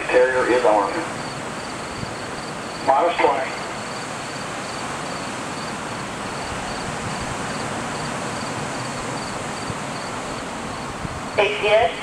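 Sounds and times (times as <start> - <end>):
outdoor ambience hiss: 0.0 - 12.0
insect chirping: 1.1 - 11.8.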